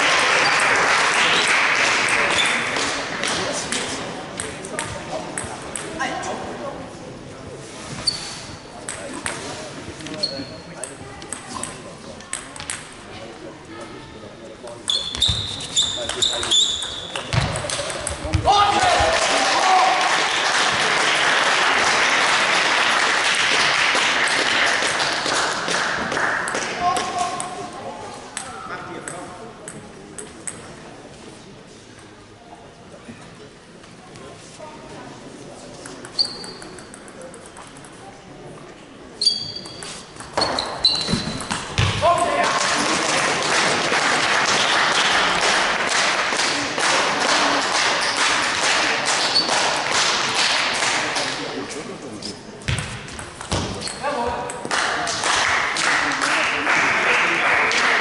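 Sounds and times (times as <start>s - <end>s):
spectators applauding: 0.0s - 2.7s, 18.7s - 26.8s, 42.4s - 51.3s, 54.7s - 58.0s
sports hall background noise: 0.0s - 58.0s
table tennis balls clicking: 10.8s - 13.0s, 35.8s - 38.1s, 39.6s - 41.8s.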